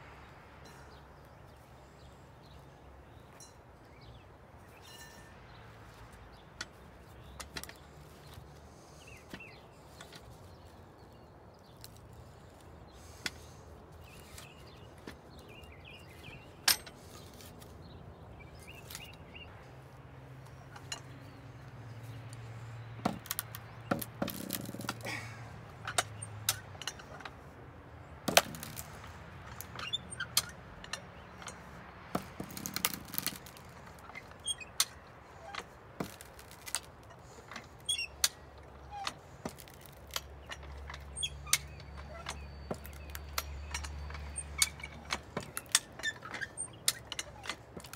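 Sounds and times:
jack clicking and knocking: 23.0 - 27.4, 28.2 - 47.9.

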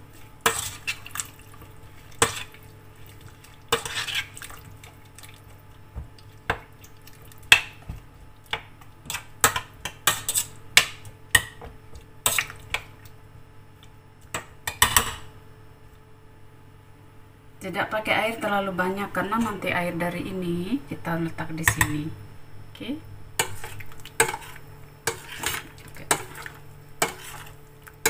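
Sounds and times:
metal spoon stirring in steel pot: 0.2 - 5.4, 9.0 - 10.6, 23.4 - 27.6.

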